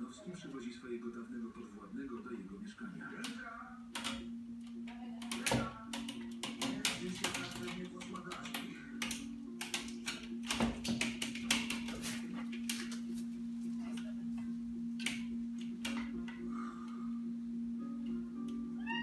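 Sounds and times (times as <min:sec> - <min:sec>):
low hum: 0:08.7 - 0:19.0.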